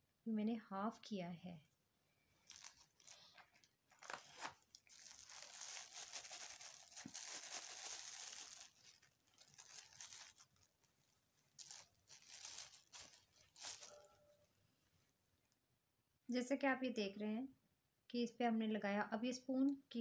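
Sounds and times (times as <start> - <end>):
plastic bag crinkling: 2.4 - 14.6.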